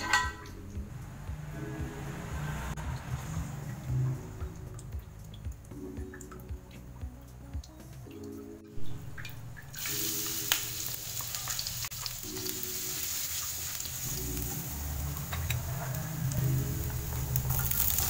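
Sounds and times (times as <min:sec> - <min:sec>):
light background music: 0:00.0 - 0:18.0
garlic sizzling in oil: 0:09.7 - 0:18.0.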